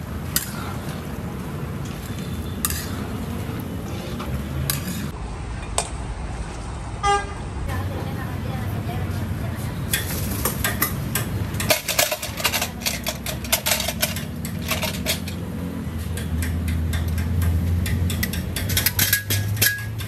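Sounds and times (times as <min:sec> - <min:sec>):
metal bowl clinking: 0:16.9 - 0:20.0.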